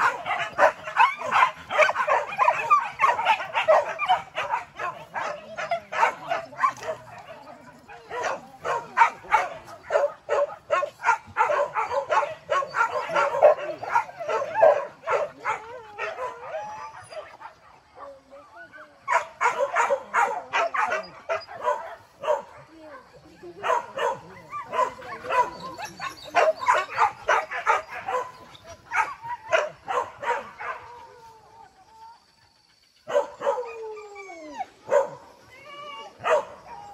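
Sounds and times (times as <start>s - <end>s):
dogs barking and yelping: 0.0s - 36.9s.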